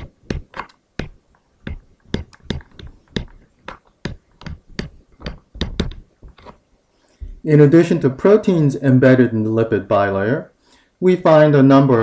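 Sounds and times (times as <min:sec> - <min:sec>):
stylus clicking on tablet screen: 0:00.0 - 0:06.6.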